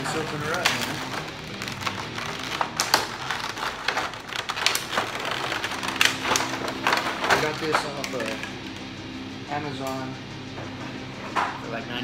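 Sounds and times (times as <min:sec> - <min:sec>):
plastic packaging crackling: 0:00.0 - 0:08.8.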